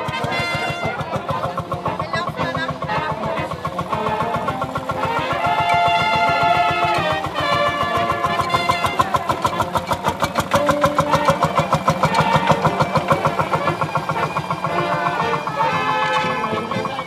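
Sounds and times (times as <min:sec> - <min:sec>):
music playing: 0:00.0 - 0:17.0
tractor engine chugging: 0:00.0 - 0:17.0.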